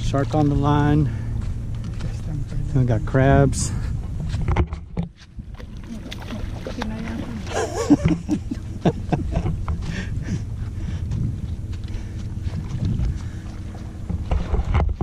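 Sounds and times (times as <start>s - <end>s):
wind buffeting microphone: 1.0s - 15.0s
knocks and rustles: 4.2s - 5.3s.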